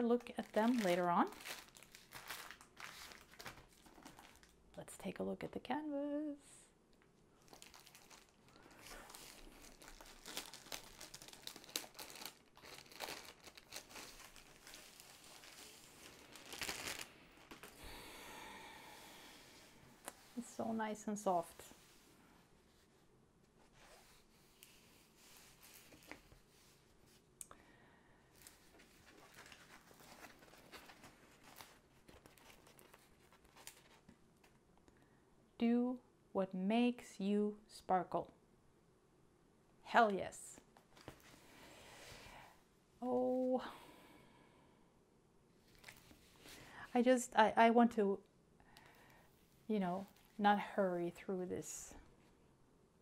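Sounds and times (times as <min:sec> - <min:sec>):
plastic sleeve crinkling: 0:00.0 - 0:04.6, 0:07.4 - 0:17.9, 0:23.8 - 0:26.5, 0:28.4 - 0:34.1.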